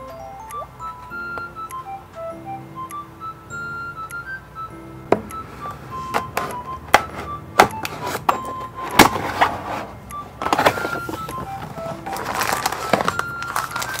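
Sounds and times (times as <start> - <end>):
soft background music: 0.0 - 14.0
cardboard and plastic rustling: 6.0 - 14.0
blade slicing box seal: 6.2 - 9.5.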